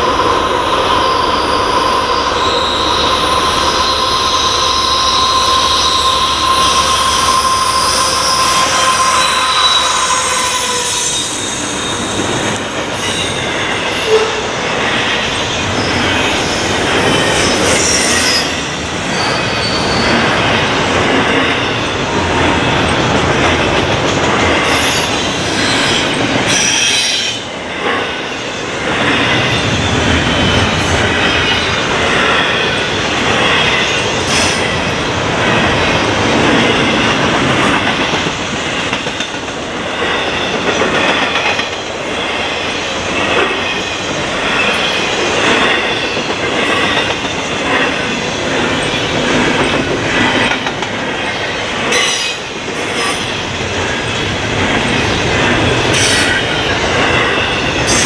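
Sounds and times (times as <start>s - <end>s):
train wheels rumbling on rail: 0.0s - 58.0s
wheel squeal: 1.0s - 12.2s, 17.2s - 20.3s.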